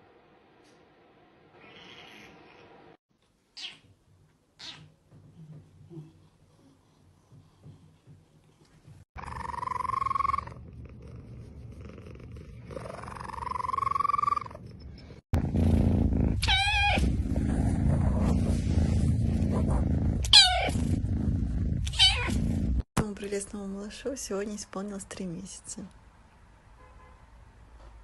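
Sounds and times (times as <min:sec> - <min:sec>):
cat meowing: 0:01.6 - 0:02.6, 0:20.3 - 0:20.8, 0:21.9 - 0:22.4
cat purring: 0:05.2 - 0:22.9.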